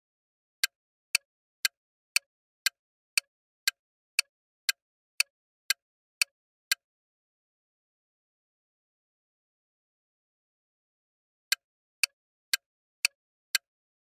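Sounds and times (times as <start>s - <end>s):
clock-like ticks: 0.6s - 6.8s, 11.5s - 13.7s.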